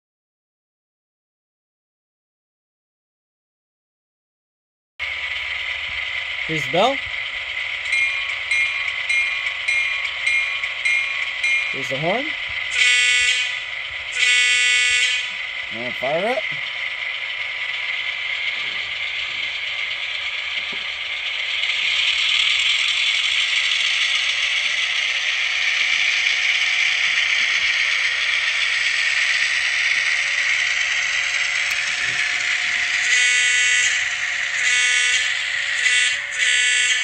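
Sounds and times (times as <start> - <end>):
model diesel locomotive engine running: 5.0 - 37.0
model locomotive horn: 12.7 - 15.4, 32.1 - 37.0.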